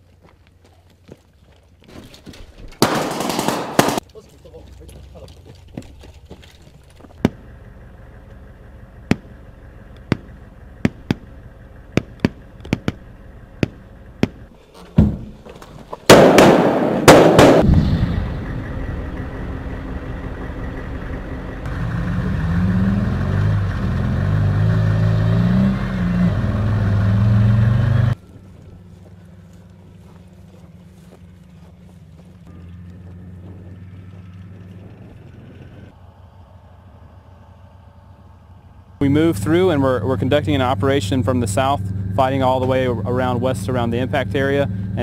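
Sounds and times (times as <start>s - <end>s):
armoured vehicle engine driving: 0.0s - 45.0s
rifle shots: 2.8s - 4.0s, 16.1s - 17.9s
heavy weapon blasts: 16.1s - 18.6s.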